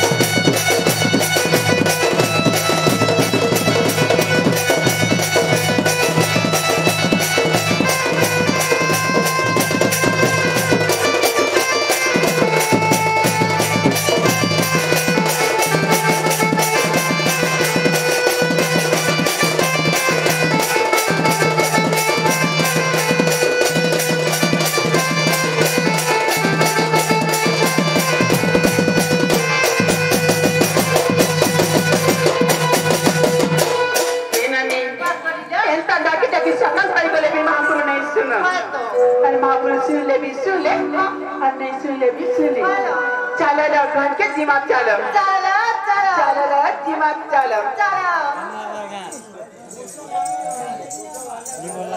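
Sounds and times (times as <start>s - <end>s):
reedy melody: 0.0s - 34.4s, 49.0s - 51.9s
fast hand drumming: 0.0s - 34.6s.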